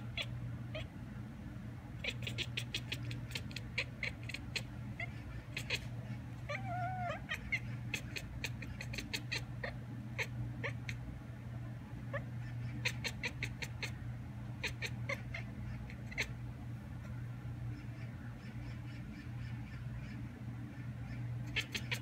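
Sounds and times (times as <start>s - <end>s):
cat chattering chirps: 0.0s - 0.9s, 2.0s - 11.1s, 12.0s - 14.0s, 14.6s - 16.4s, 17.7s - 22.0s
cat wavering meow: 6.5s - 11.0s.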